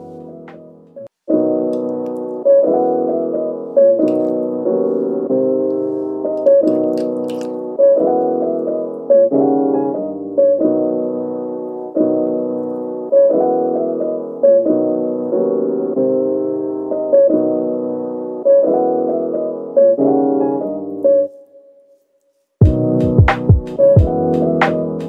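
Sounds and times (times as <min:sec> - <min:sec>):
piano chords: 0:00.0 - 0:21.6, 0:22.6 - 0:25.0
percussive music: 0:22.6 - 0:25.0.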